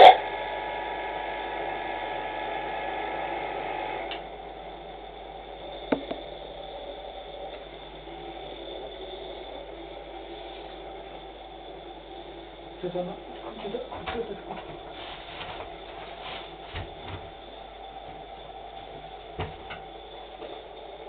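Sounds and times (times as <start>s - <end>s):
bench grinder motor humming: 0.0s - 13.9s.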